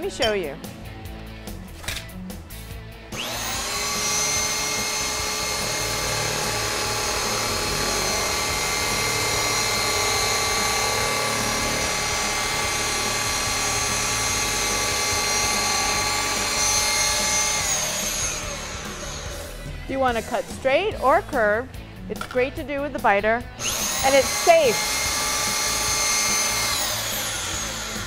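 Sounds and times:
drill motor whining: 3.1s - 20.7s, 23.6s - 28.0s.

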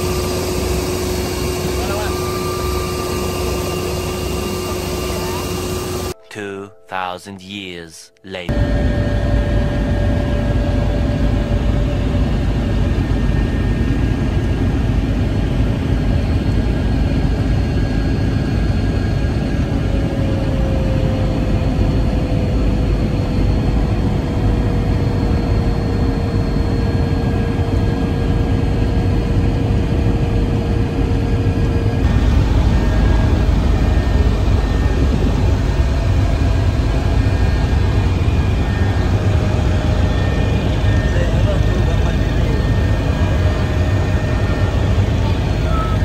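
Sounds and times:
helicopter turbine and rotor: 0.0s - 6.2s, 8.5s - 46.0s
thin steady whine: 0.0s - 6.2s, 31.6s - 46.0s.

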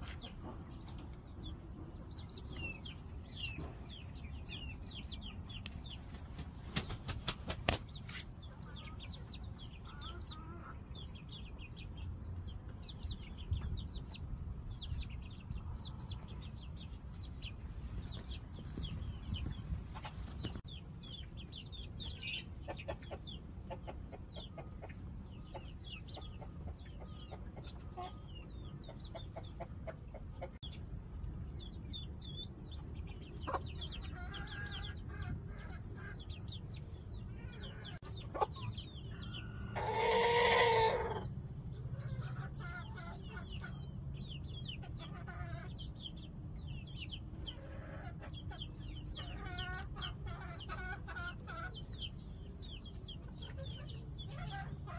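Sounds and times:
chicks peeping: 0.0s - 54.9s
hen clucking softly: 8.1s - 11.0s, 22.1s - 30.6s, 37.3s - 41.3s
loud drawn-out chicken call: 39.3s - 41.2s.

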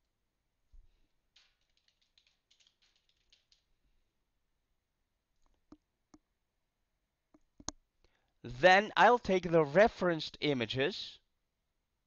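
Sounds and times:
computer keyboard typing: 1.4s - 3.7s.

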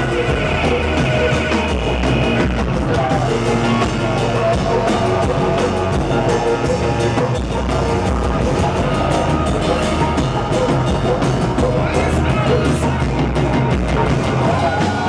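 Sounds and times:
drums: 0.0s - 15.0s
heavy bass: 0.0s - 15.0s
live band playing electronic music: 0.0s - 15.0s.

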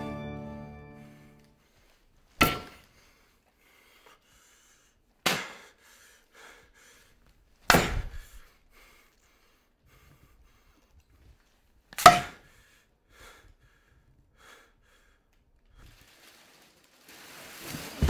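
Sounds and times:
frying pan striking a body: 7.7s - 8.0s.

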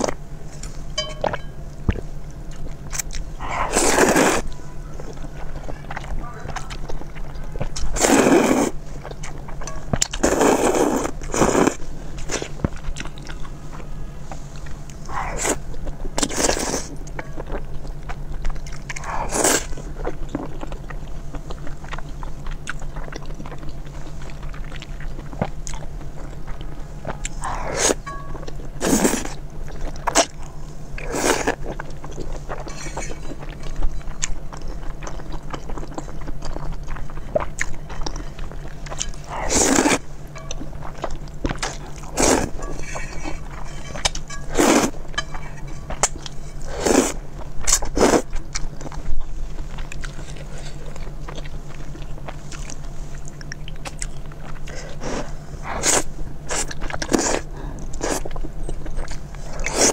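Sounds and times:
steady low hum: 0.0s - 59.9s
wet chewing: 0.0s - 59.9s
slurping noodles: 3.4s - 4.5s, 7.8s - 8.8s, 10.1s - 12.6s, 15.1s - 15.6s, 16.2s - 17.0s, 19.0s - 19.9s, 27.3s - 28.0s, 28.8s - 29.4s, 31.0s - 31.7s, 39.0s - 40.0s, 41.5s - 45.6s, 46.6s - 48.4s, 54.6s - 58.3s, 59.5s - 59.9s.

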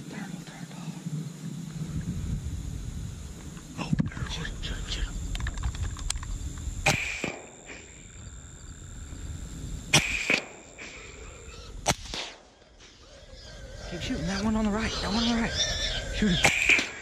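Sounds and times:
suppressed rifle shots: 9.9s - 10.7s.

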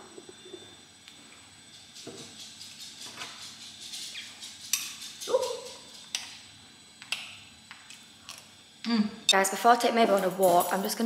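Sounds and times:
dog barking: 5.3s - 5.9s.

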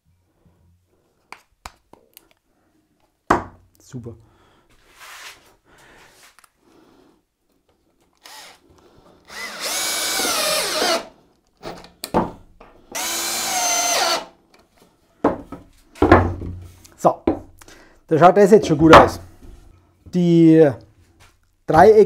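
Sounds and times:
drill driving screws into wood: 8.2s - 8.6s, 9.3s - 11.8s, 12.9s - 14.4s.

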